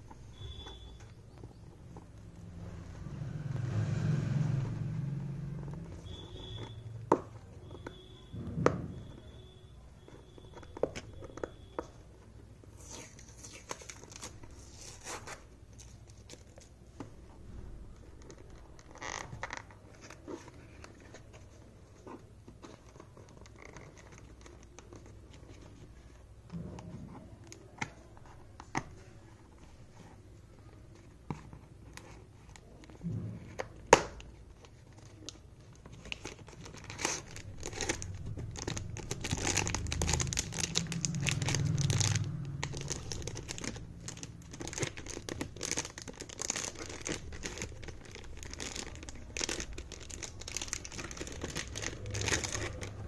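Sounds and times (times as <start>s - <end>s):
packaging tearing and crinkling: 12.8s - 16.7s, 33.9s - 53.0s
low rumble: 37.6s - 45.2s.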